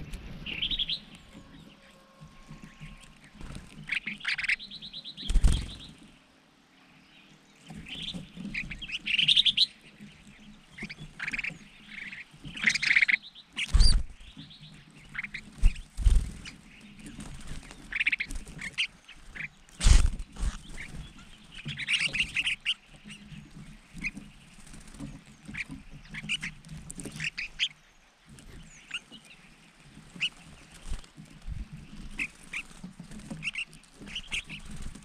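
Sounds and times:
birds chirping and chattering: 0.0 - 35.0
wing flaps thumping: 5.2 - 5.9, 15.5 - 18.8, 19.8 - 22.3.

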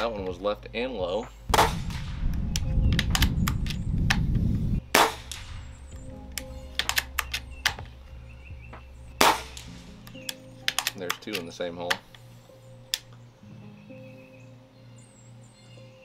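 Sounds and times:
background music: 0.0 - 16.0
air rifle shots: 1.5 - 4.3, 4.9 - 6.0, 9.2 - 9.9
metallic bolt clicks: 6.3 - 7.9, 9.5 - 12.2.

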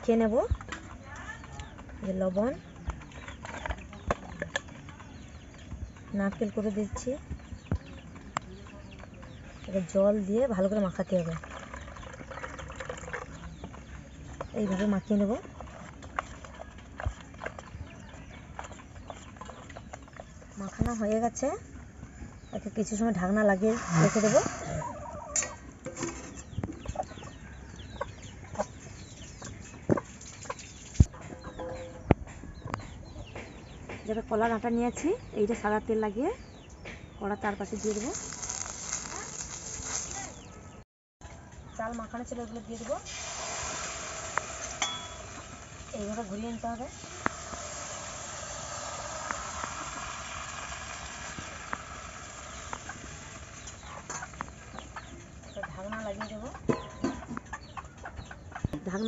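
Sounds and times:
small birds chirping: 0.0 - 59.0
chickens clucking: 0.1 - 34.1, 43.6 - 59.0
hen clucking: 23.4 - 33.8, 45.2 - 59.0
batter sizzling in oil: 37.6 - 40.4, 42.8 - 54.8.

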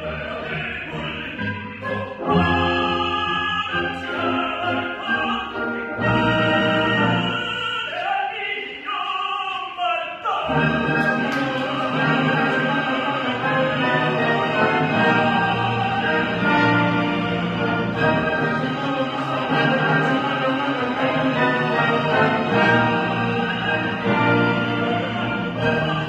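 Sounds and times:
male operatic duet singing: 0.0 - 26.0
instrumental accompaniment: 10.5 - 26.0.

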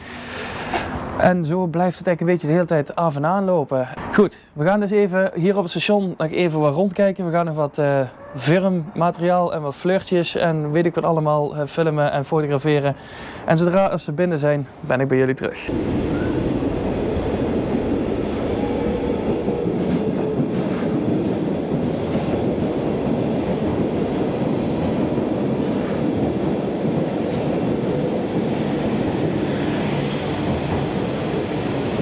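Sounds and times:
train wheels on rails: 15.7 - 32.0.

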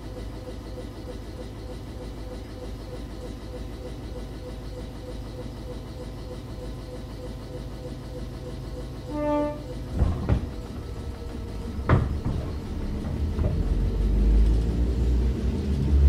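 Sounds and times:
train rumbling: 0.0 - 16.0
train horn blast: 9.0 - 10.9
sharp knocks: 9.4 - 14.2.

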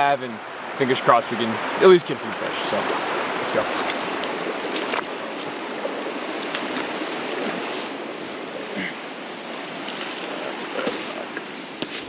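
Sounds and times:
river rushing over rocks: 0.0 - 5.8.

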